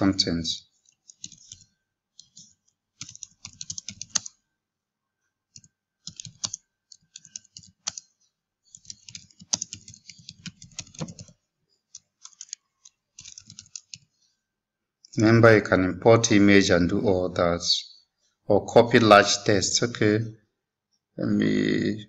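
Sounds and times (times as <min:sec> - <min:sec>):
typing on computer keyboard: 0:00.8 - 0:04.4, 0:05.5 - 0:08.1, 0:08.7 - 0:14.1.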